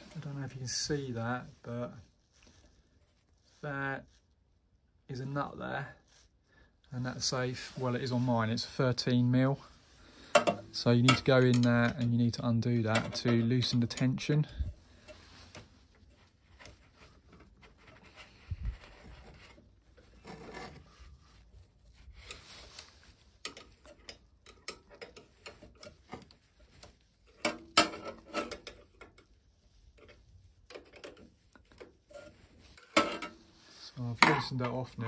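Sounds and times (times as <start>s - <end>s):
metal scraping and rubbing: 7.0s - 35.0s.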